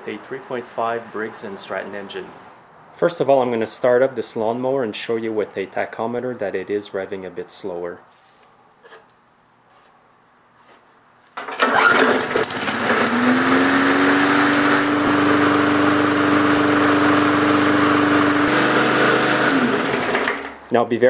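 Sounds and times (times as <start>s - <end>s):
lawnmower engine running: 11.4s - 20.6s.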